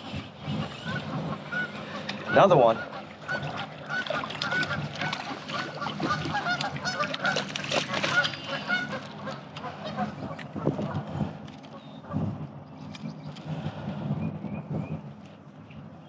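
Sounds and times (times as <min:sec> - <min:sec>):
geese honking: 0:00.8 - 0:10.3.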